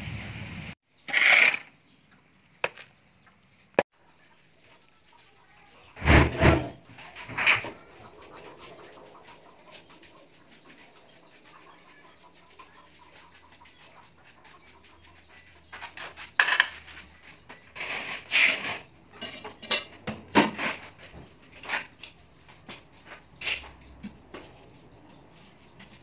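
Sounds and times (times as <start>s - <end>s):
trowel scraping on mortar and tile: 17.8s - 18.9s.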